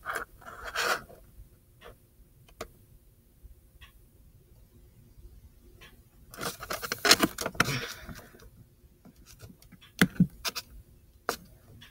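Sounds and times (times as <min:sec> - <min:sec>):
paper rustling and crinkling: 0:06.4 - 0:08.3.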